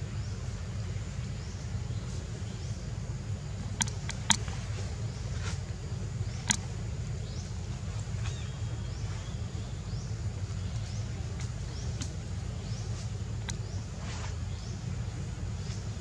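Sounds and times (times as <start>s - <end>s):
sharp clicks: 3.8s - 4.5s, 6.4s - 6.7s.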